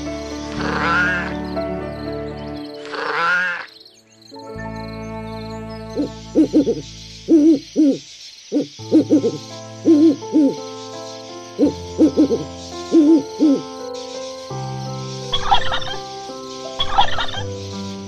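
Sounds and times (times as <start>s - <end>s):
sustained music chord: 0.0s - 7.7s
owl hooting: 0.5s - 1.4s, 2.8s - 3.7s, 6.0s - 10.6s, 11.6s - 13.7s, 15.3s - 16.0s, 16.8s - 17.5s.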